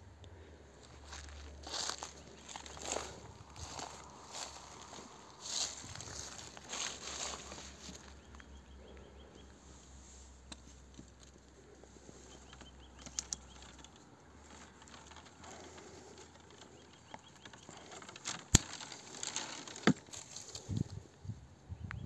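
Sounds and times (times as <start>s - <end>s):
twigs rustling: 0.3s - 21.2s
pruning shears clicking: 17.9s - 20.4s.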